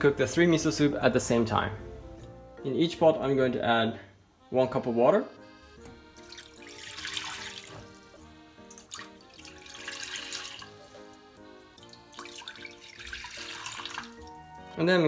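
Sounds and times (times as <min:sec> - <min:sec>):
soft background music: 0:00.0 - 0:15.0
water pouring into metal pots: 0:06.2 - 0:11.1, 0:11.7 - 0:14.8.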